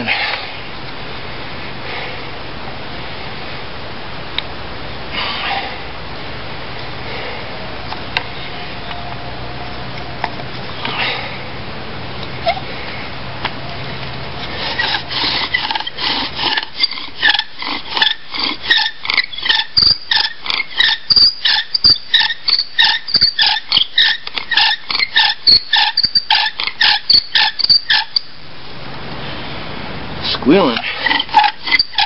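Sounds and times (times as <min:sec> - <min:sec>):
wooden spindle squeaking on board: 0:14.5 - 0:28.4, 0:30.9 - 0:32.0.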